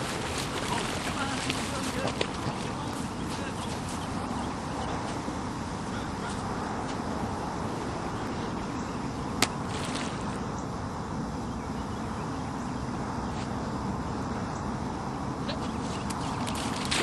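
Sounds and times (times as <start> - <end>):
wind buffeting microphone: 0.0 - 13.2
sharp crack: 9.4 - 10.2.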